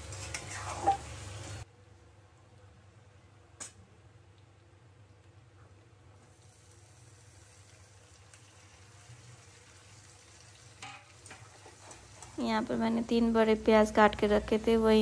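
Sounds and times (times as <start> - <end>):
potatoes sizzling in oil: 0.0 - 1.7, 6.3 - 14.8.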